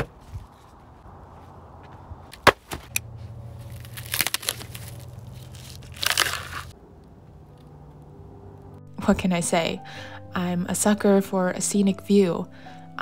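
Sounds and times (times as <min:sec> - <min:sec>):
sharp knock of firewood: 0:02.4 - 0:02.9
plastic wrap crinkling and tearing: 0:03.6 - 0:06.8.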